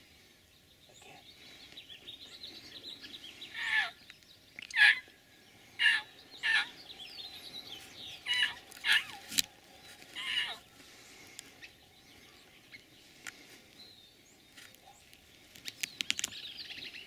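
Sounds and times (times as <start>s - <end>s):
coyote barking: 3.5s - 4.0s, 4.7s - 5.1s, 5.8s - 6.8s, 8.2s - 9.4s, 10.2s - 10.6s.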